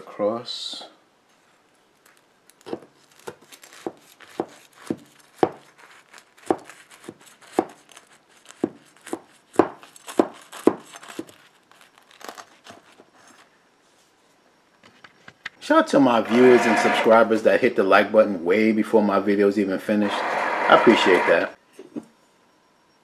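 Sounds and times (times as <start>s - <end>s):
knife sawing through buns: 3.6s - 9.6s, 16.3s - 17.2s, 20.0s - 21.5s.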